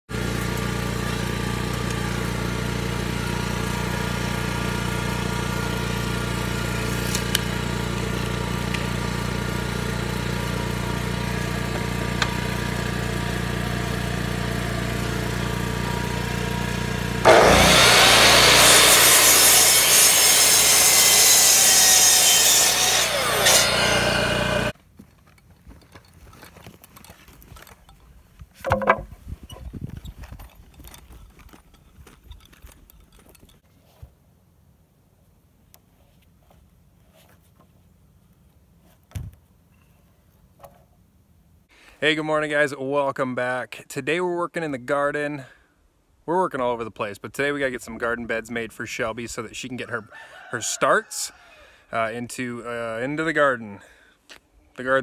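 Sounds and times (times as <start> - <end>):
miter saw cutting wood: 0.1 - 24.8
wooden board knock: 28.6 - 29.2.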